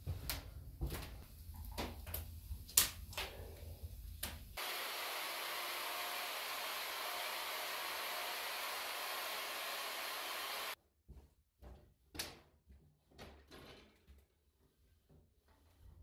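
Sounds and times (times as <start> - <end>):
power tool brush scrubbing wood: 4.6 - 10.8.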